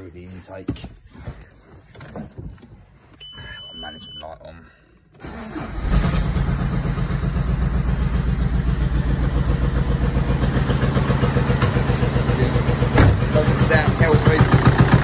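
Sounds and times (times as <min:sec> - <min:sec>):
diesel engine cranking and starting: 0:05.1 - 0:15.0
diesel engine idling with knock: 0:07.1 - 0:15.0.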